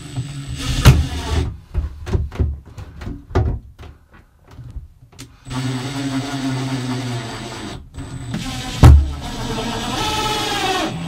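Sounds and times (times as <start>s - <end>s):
knocks and taps on wall: 1.7s - 4.6s
cordless drill running: 5.4s - 11.0s.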